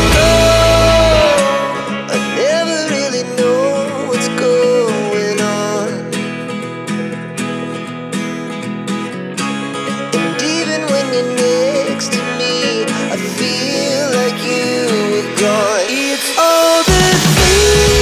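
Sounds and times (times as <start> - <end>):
deep bass: 0.0 - 1.4, 16.9 - 18.0
person singing: 0.0 - 6.2, 10.0 - 18.0
strummed acoustic guitar: 0.0 - 18.0.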